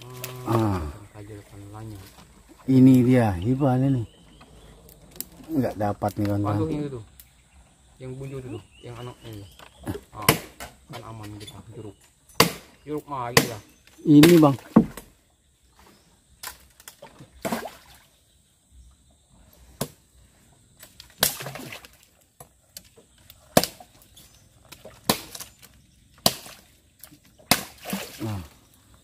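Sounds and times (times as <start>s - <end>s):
machete chopping wood: 9.9s - 11.1s, 12.4s - 15.1s, 21.1s - 21.8s, 23.5s - 23.9s, 24.7s - 26.6s, 27.4s - 28.3s.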